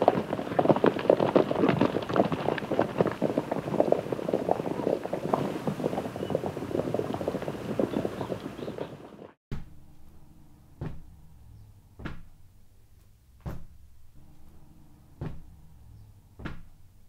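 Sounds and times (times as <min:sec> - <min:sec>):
faint low background: 0:09.5 - 0:17.0.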